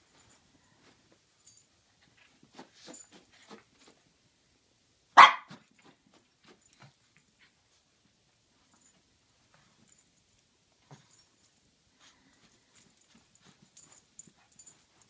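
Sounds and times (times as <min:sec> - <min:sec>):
dogs scuffling on blanket: 0:02.0 - 0:04.1
dog barking: 0:05.2 - 0:05.6.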